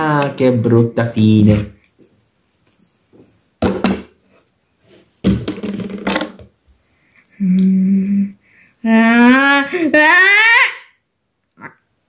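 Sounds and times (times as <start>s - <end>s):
child making vocal noises: 7.4s - 11.0s.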